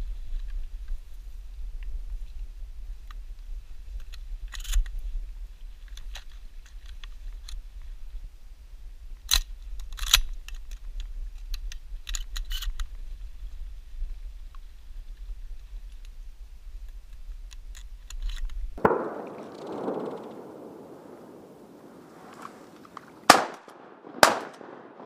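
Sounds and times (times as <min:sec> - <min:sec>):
low rumble: 0:18.8 - 0:22.8.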